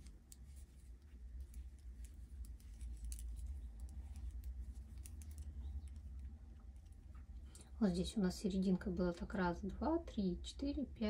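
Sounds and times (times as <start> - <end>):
knitting needles clicking: 0.0 - 7.6
steady low hum: 0.0 - 11.0.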